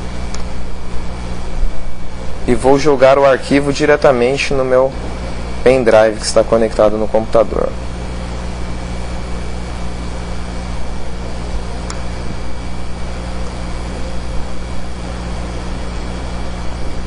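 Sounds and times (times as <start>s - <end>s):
background hum and hiss: 0.0s - 17.0s
faint click: 11.8s - 12.0s.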